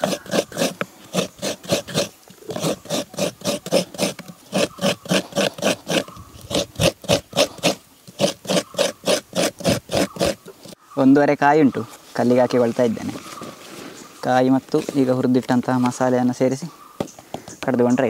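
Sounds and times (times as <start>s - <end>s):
coconut rasping on grater: 0.0s - 10.8s.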